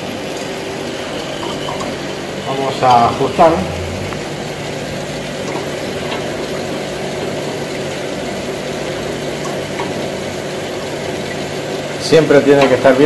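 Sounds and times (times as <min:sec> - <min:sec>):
compressor hum: 0:00.0 - 0:13.0
even rushing noise: 0:03.0 - 0:05.3.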